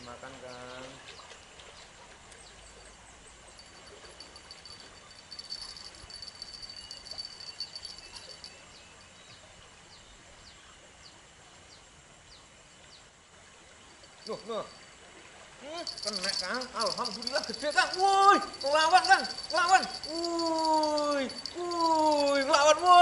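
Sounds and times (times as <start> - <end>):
pulsing insect trill: 2.8 - 9.3, 13.9 - 15.0, 15.6 - 23.0.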